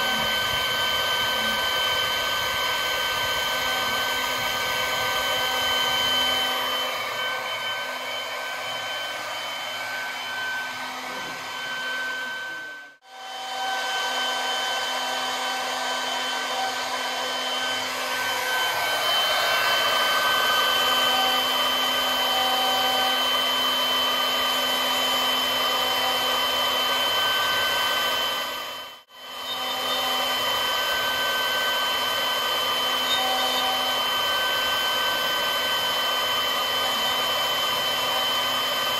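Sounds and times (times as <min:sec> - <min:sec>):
router spindle whining: 0:00.0 - 0:38.9.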